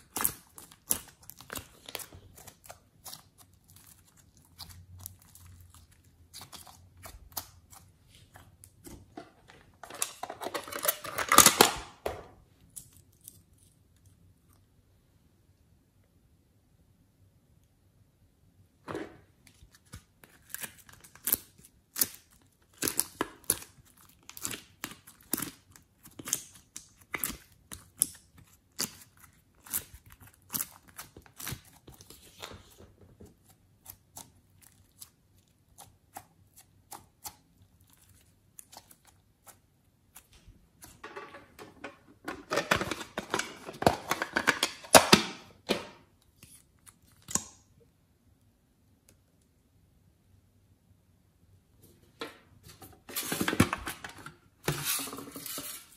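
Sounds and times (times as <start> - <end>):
slime clicking and crackling: 0.0 - 8.8, 19.8 - 41.0.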